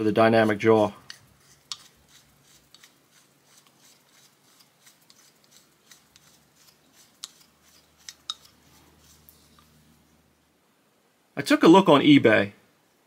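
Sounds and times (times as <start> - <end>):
adjustable spanner clicking and scraping: 1.0 - 9.7.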